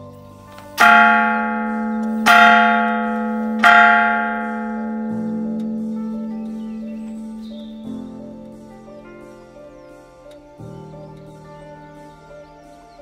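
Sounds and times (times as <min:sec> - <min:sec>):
soft background music: 0:00.0 - 0:13.0
large bell ringing: 0:00.6 - 0:10.2.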